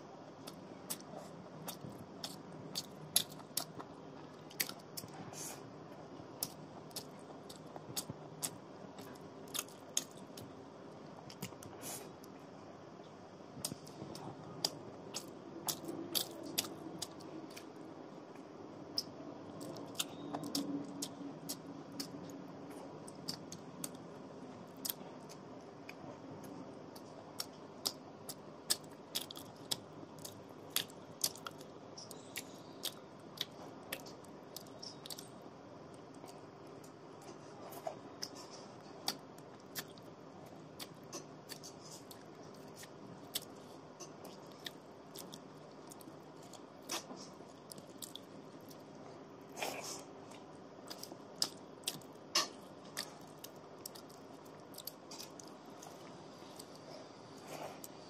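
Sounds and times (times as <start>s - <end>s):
faint steady hum: 0.0s - 58.0s
chewing clicks and smacks: 0.4s - 5.2s, 6.4s - 10.5s, 13.6s - 17.7s, 18.9s - 24.0s, 26.9s - 35.3s, 35.9s - 48.9s, 50.3s - 56.8s.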